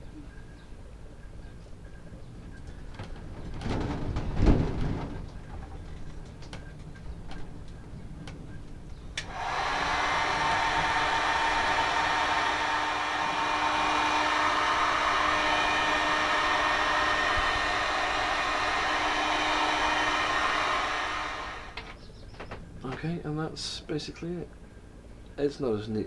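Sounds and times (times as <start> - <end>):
heat gun fan rushing and humming: 2.6 - 22.9.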